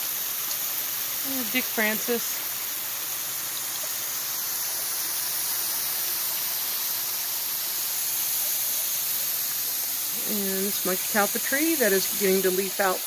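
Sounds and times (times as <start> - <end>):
hose sprayer mist hissing: 0.0 - 13.0.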